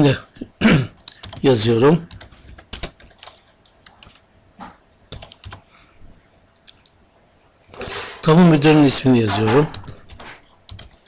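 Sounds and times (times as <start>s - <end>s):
computer keyboard typing: 0.9s - 4.2s, 5.1s - 5.7s, 8.8s - 11.0s.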